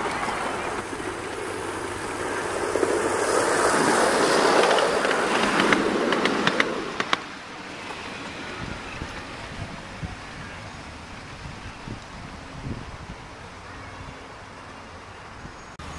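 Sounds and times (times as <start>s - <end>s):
wheels clicking over rail joints: 0.0s - 10.7s
miniature train rolling past: 0.0s - 15.9s.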